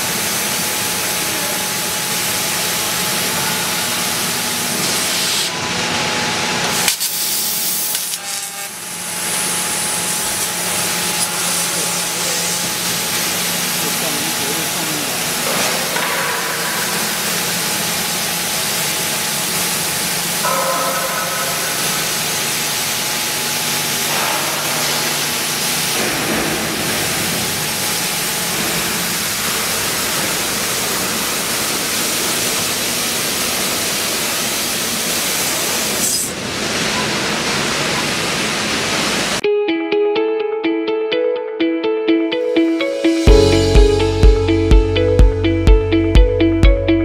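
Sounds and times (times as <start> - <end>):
laser cutter hissing: 4.7 - 5.5, 6.7 - 16.0.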